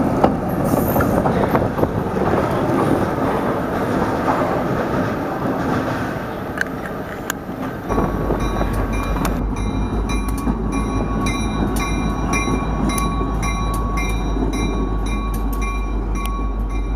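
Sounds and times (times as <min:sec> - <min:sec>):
diesel locomotive rumbling: 0:00.0 - 0:16.9
crossing bell ringing: 0:07.2 - 0:16.9.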